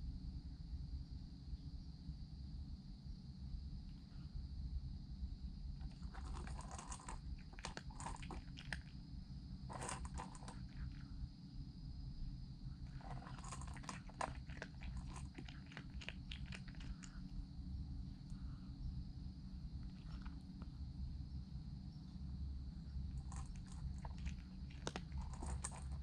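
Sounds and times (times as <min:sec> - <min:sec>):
cat crunching food from metal bowl: 0:05.8 - 0:09.0, 0:09.7 - 0:11.0, 0:12.8 - 0:17.3, 0:19.8 - 0:20.6, 0:23.0 - 0:26.0.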